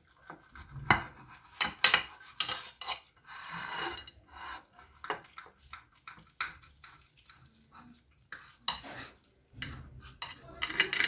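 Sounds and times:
knife scraping ceramic plate: 0:00.5 - 0:05.4, 0:08.3 - 0:11.0.

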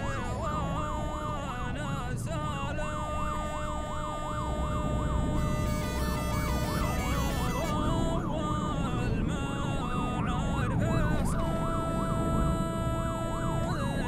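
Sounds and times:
electronic siren yelping: 0:00.0 - 0:01.2, 0:02.9 - 0:08.1
steady siren tone: 0:00.0 - 0:09.1, 0:09.8 - 0:14.0
low vehicle rumble: 0:00.0 - 0:14.0.

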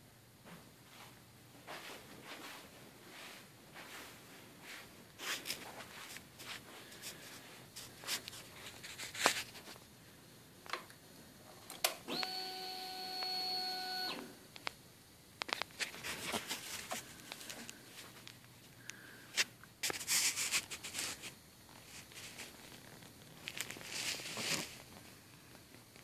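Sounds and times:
clicks and handling noises: 0:15.4 - 0:25.0.

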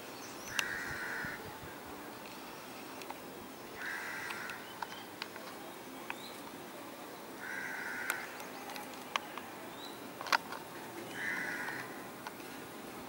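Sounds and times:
faint hiss: 0:00.0 - 0:13.0
crow cawing: 0:00.6 - 0:01.4, 0:03.8 - 0:04.6, 0:07.4 - 0:08.3, 0:11.1 - 0:12.0.

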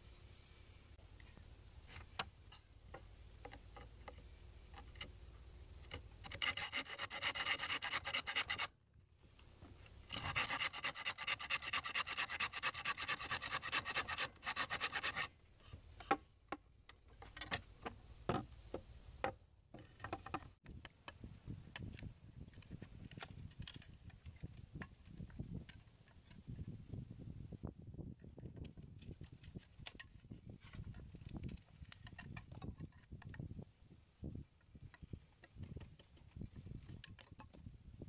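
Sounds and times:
hand saw cutting bamboo: 0:05.9 - 0:08.7, 0:10.0 - 0:15.4.

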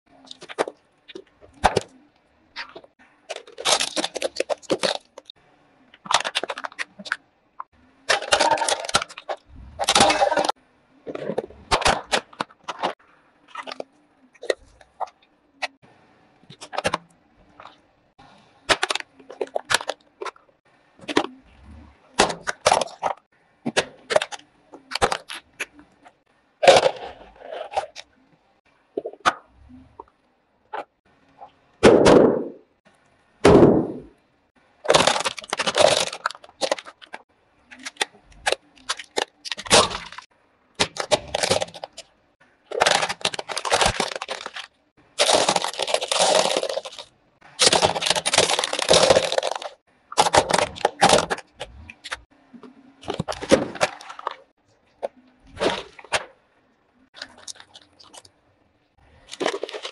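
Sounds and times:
plastic crunching under car tyre: 0:00.2 - 0:05.3, 0:08.1 - 0:15.8, 0:34.8 - 0:42.1, 0:42.7 - 0:52.3, 0:53.0 - 0:56.4, 0:59.2 - 0:59.9.

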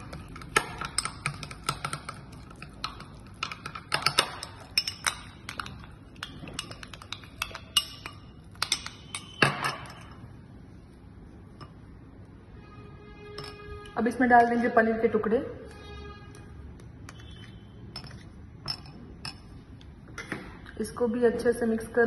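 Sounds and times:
metal spoon clinking against glass: 0:00.0 - 0:10.2, 0:13.3 - 0:13.8, 0:17.9 - 0:19.5
spoon scraping bowl: 0:13.2 - 0:14.0, 0:15.7 - 0:19.5.

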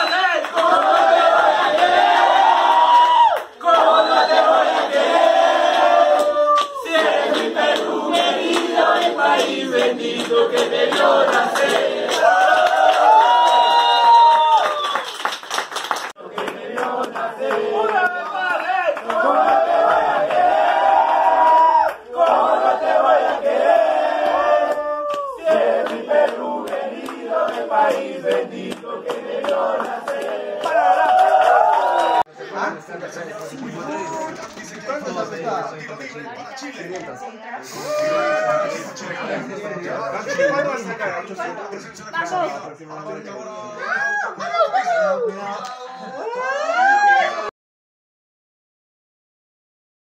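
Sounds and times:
people singing in unison: 0:00.5 - 0:02.7, 0:03.6 - 0:13.0, 0:16.2 - 0:18.2, 0:19.0 - 0:31.1.

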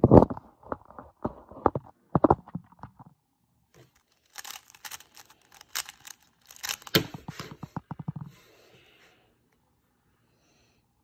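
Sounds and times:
rustling and scraping: 0:03.8 - 0:08.9.

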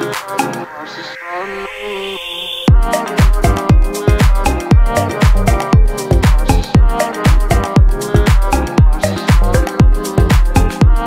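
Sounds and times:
electronic dance music: 0:00.0 - 0:11.0
fast kick drum beat: 0:02.7 - 0:11.0.

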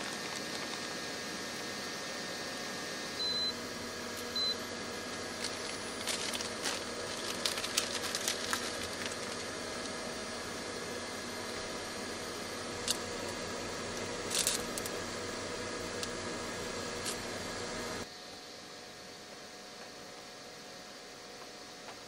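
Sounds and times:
cooktop beeping: 0:04.3 - 0:04.7.

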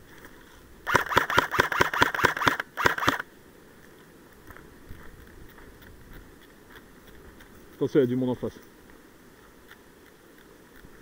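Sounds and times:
airsoft gun shots: 0:00.9 - 0:03.2.

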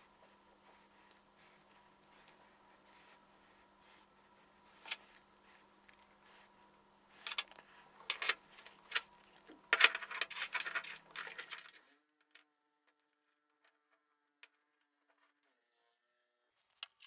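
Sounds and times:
pipe fittings clicking and rattling: 0:07.1 - 0:11.8.

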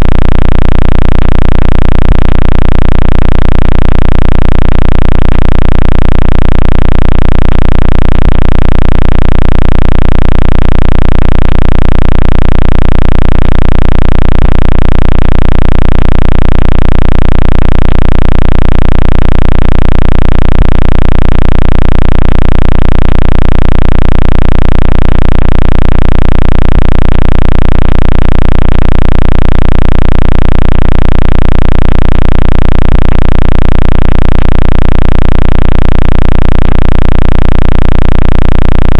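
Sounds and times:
low pulsing electronic buzz: 0:00.0 - 0:38.9.

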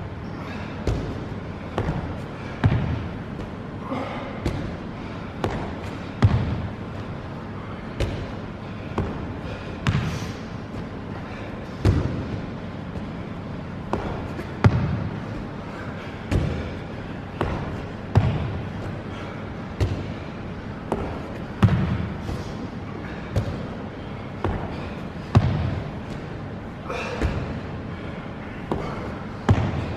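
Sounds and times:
trainers stomping on padded box: 0:05.4 - 0:06.7, 0:11.7 - 0:12.4, 0:13.9 - 0:15.2, 0:16.2 - 0:18.7, 0:24.4 - 0:26.3, 0:28.7 - 0:29.9.

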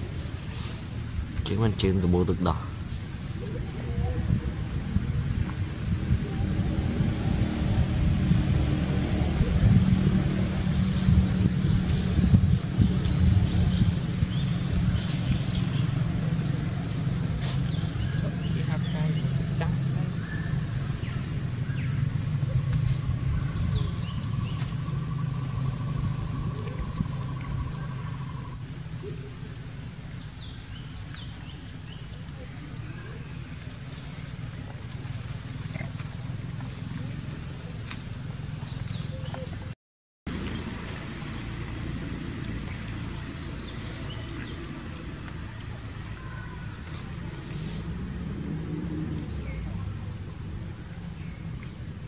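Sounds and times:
birds chirping: 0:00.0 - 0:06.4, 0:09.0 - 0:47.8
low rumble: 0:02.7 - 0:29.9.

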